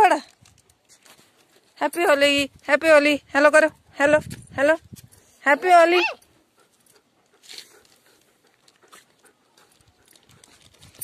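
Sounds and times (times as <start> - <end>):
dog panting: 5.1 - 11.0.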